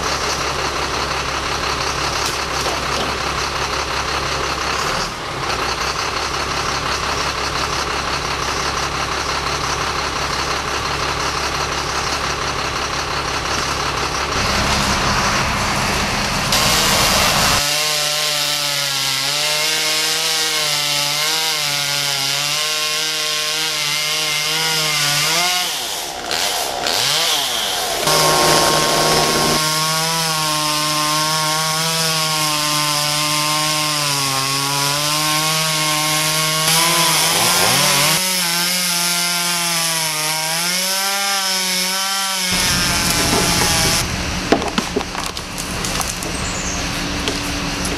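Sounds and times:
chainsaw cutting wood: 0.0s - 15.5s, 16.5s - 47.9s
truck engine running: 0.0s - 17.7s, 25.2s - 30.2s, 42.5s - 47.9s.

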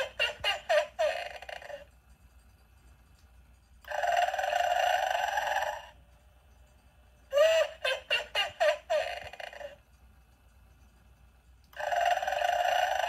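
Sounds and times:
recorded snoring from toy speaker: 3.9s - 6.0s, 11.8s - 13.0s.

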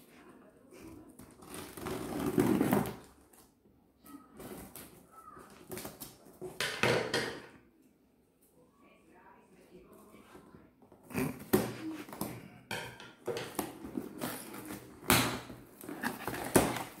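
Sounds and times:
hands scraping cardboard box: 13.5s - 15.0s, 15.8s - 17.0s.

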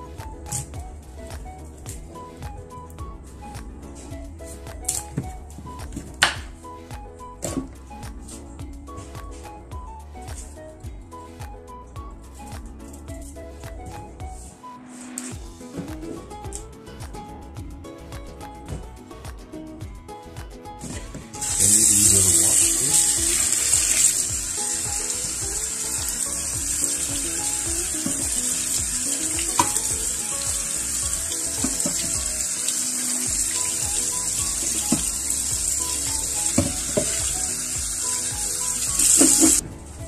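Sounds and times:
tap water running into a pot: 21.4s - 39.6s.

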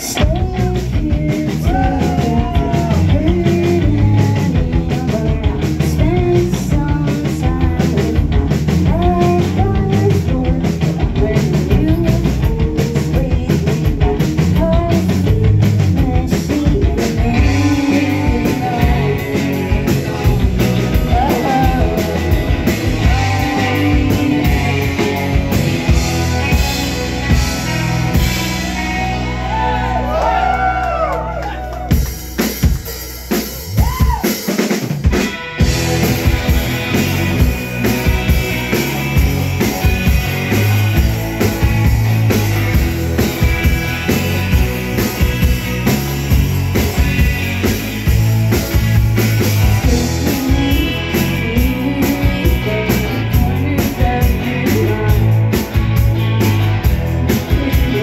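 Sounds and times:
lead vocals singing: 0.0s - 26.8s, 49.7s - 55.5s, 57.3s - 58.0s
bass guitar: 0.0s - 58.0s
drum kit beat: 0.0s - 58.0s
electric guitars: 0.0s - 58.0s.

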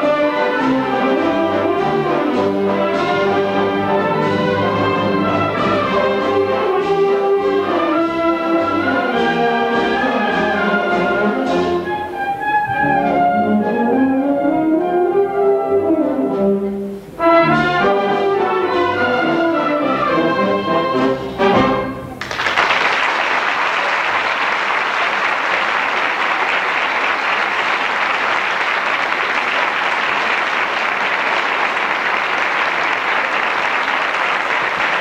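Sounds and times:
wind band playing: 0.0s - 22.2s
audience applause: 22.2s - 35.0s.

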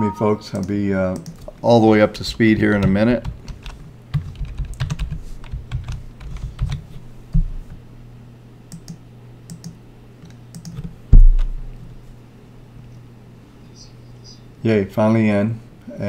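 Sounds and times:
steady low hum: 0.0s - 16.0s
computer keyboard typing: 0.5s - 1.5s, 2.7s - 6.8s, 8.7s - 10.9s
loud low thump: 11.1s - 11.8s.

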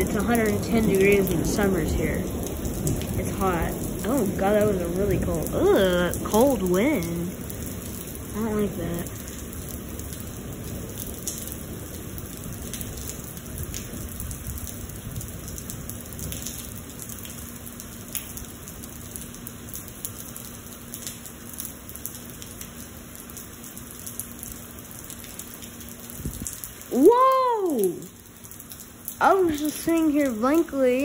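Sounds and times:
rain hissing on the ground: 0.0s - 31.0s.

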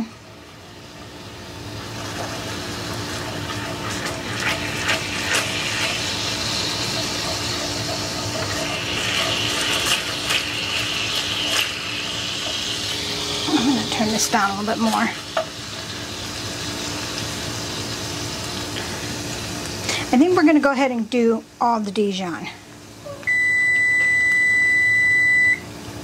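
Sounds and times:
sauce sizzling in a skillet: 0.0s - 20.4s
spoon scraping a pan: 3.1s - 6.0s, 6.6s - 11.8s.

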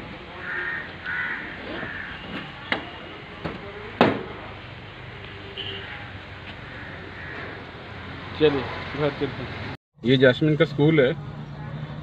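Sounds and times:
crows cawing: 0.3s - 2.2s, 5.9s - 7.8s.

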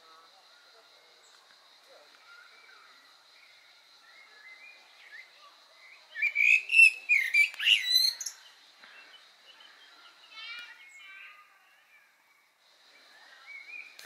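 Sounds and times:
faint songbird warbling: 2.2s - 14.0s
blackbird chattering chirps: 6.2s - 8.5s.

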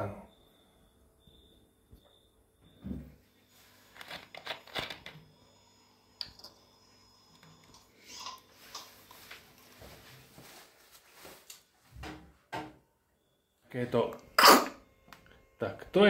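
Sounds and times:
faint steady hum: 0.0s - 16.0s
camera handling clicks and rustles: 3.9s - 5.2s.

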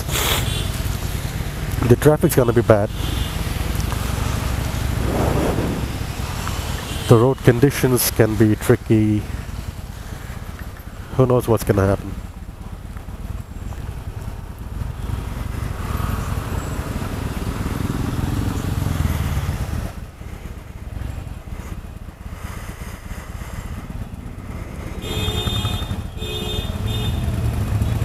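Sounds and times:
motorcycle engine running: 12.1s - 28.0s.

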